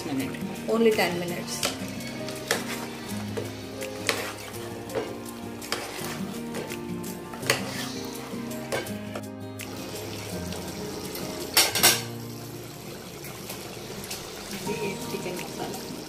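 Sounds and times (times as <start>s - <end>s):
background music with held notes: 0.0s - 16.0s
faint kitchen sounds: 0.8s - 6.8s, 7.4s - 9.2s.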